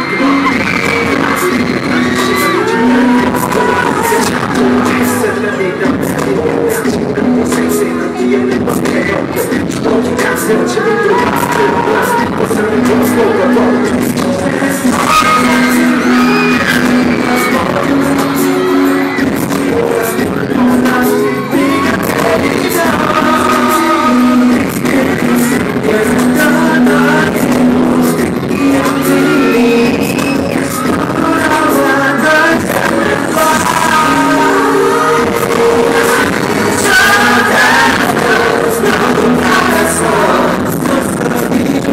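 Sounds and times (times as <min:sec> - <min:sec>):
group singing live into microphones: 0:00.0 - 0:41.9
pop accompaniment with steady beat: 0:00.0 - 0:41.9.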